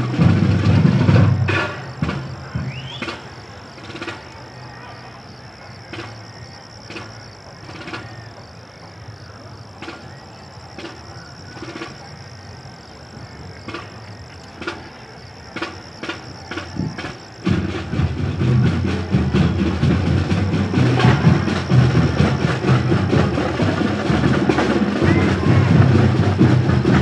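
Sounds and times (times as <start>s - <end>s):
distant parade drums: 0.0s - 27.0s.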